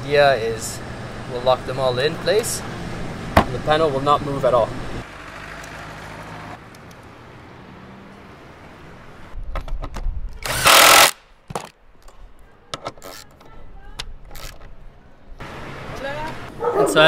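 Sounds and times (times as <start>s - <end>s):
cordless drill spinning: 10.4s - 11.2s.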